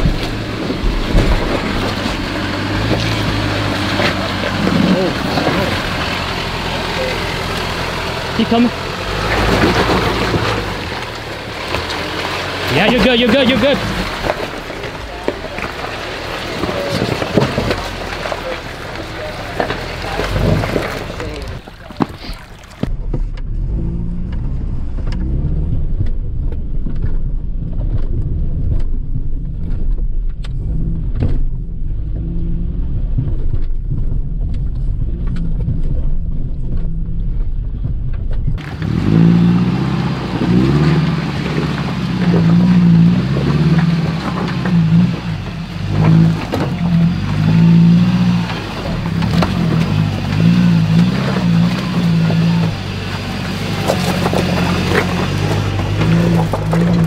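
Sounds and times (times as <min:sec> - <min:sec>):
clicks and knocks over rocks: 0:00.0 - 0:08.3, 0:09.0 - 0:23.3, 0:37.8 - 0:57.0
engine revving: 0:00.0 - 0:21.9, 0:22.9 - 0:57.0
off-road engine droning: 0:00.0 - 0:57.0.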